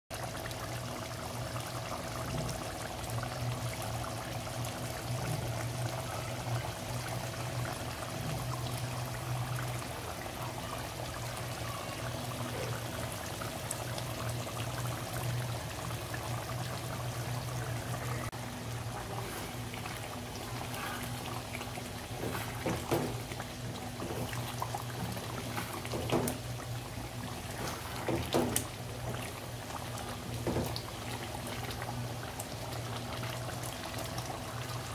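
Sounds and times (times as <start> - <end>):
curry bubbling in a pot: 0.1 - 34.9.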